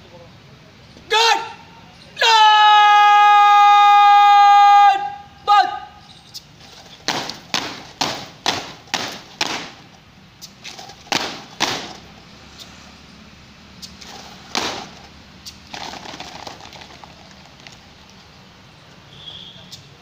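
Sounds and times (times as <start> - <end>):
soldiers making drill strikes: 6.8 - 9.9, 10.7 - 12.1, 14.0 - 15.1.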